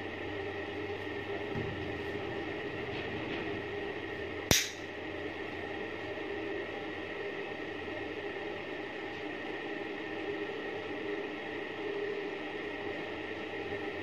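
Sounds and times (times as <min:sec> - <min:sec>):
sharp metal click: 0:04.5 - 0:04.8.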